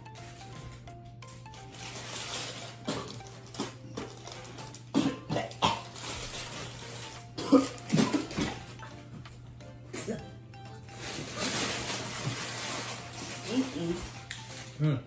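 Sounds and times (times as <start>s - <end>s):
person coughing: 4.9s - 6.0s, 7.4s - 8.4s.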